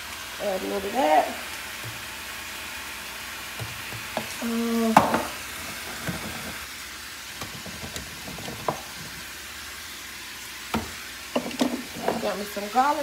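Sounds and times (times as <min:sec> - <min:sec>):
food sizzling in a frying pan: 0:00.0 - 0:13.0
utensil stirring food: 0:00.4 - 0:13.0
utensil knocking against pan: 0:10.7 - 0:12.3.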